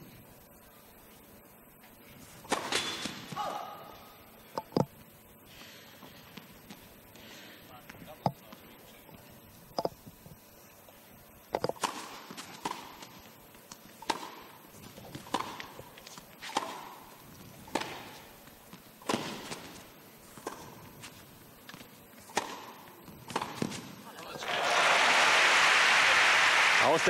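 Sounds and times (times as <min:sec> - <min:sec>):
rackets hitting tennis ball: 0:02.4 - 0:03.9, 0:11.5 - 0:24.1
tennis ball bouncing: 0:11.6 - 0:23.9.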